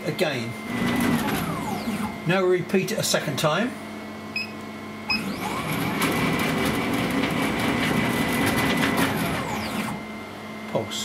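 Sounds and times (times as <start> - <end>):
stepper motor whine: 0.7 - 2.3, 5.1 - 10.2.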